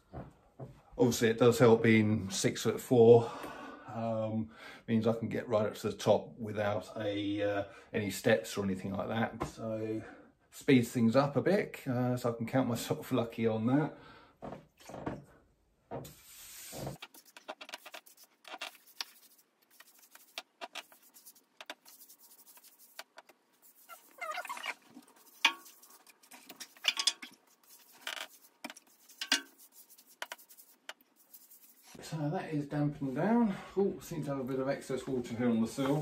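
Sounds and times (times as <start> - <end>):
wet rubbing on wallpaper: 16.1 - 32.0
short squeaks: 23.8 - 24.9.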